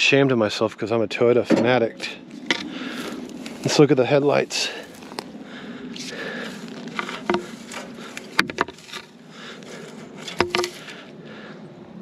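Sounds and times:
footsteps crunching through dry grass: 2.2 - 11.2
twigs snapping: 2.3 - 3.8, 4.8 - 5.4, 6.0 - 11.0.

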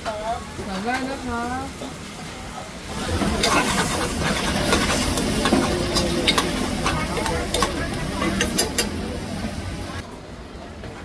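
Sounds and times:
food sizzling and bubbling in broth: 2.8 - 10.0.

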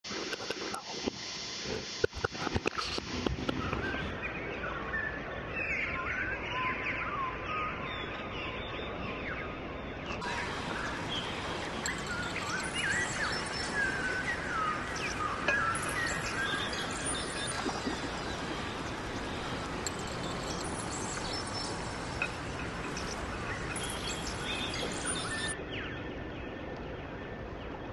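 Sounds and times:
steady rushing background: 10.2 - 25.6
birds chirping: 10.2 - 26.0.

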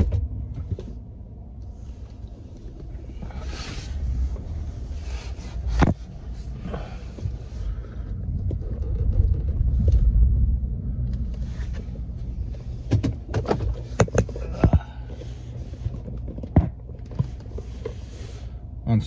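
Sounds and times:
low rumble in car cabin: 0.0 - 19.0
sharp clicks and knocks: 8.0 - 14.9.

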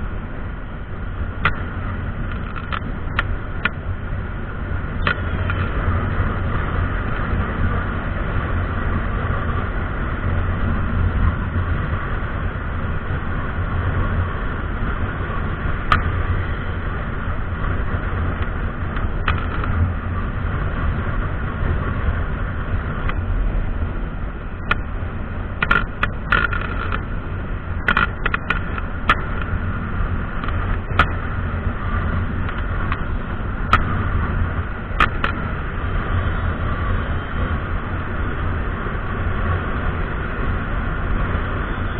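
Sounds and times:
motorcycle cruising: 0.0 - 41.9
sharp clicks and knocks: 1.4 - 3.8, 5.0 - 5.8, 15.8 - 16.1, 17.6 - 19.9, 23.0 - 23.2, 24.6 - 24.9, 25.5 - 27.2, 27.8 - 29.6, 30.3 - 31.3, 32.4 - 34.0, 34.9 - 35.5.

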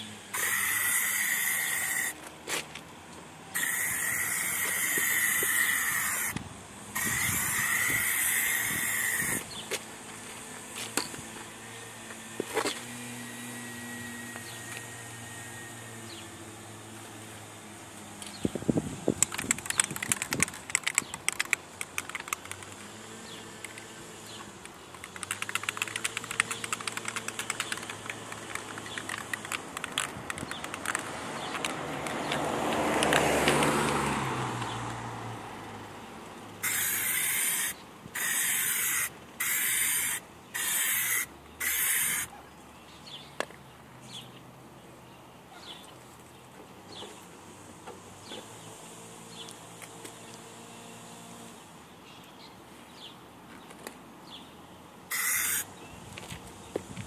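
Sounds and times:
spray can hissing: 0.3 - 2.2, 3.6 - 6.3, 6.9 - 9.4, 36.6 - 42.3, 55.1 - 55.6
spray can ball rattling: 7.0 - 9.3, 19.1 - 22.9, 24.8 - 33.3, 36.6 - 42.2, 55.1 - 55.6.

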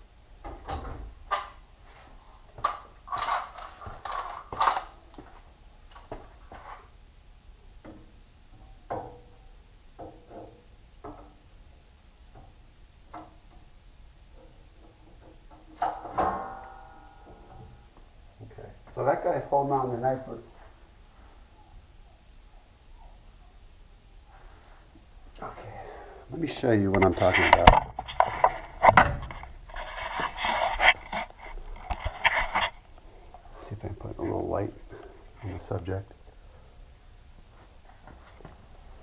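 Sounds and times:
metallic ring: 15.8 - 17.6.

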